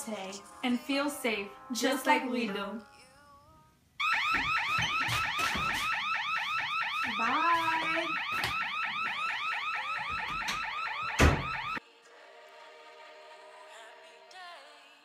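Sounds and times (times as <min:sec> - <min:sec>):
burglar alarm siren whooping: 0:04.0 - 0:11.8.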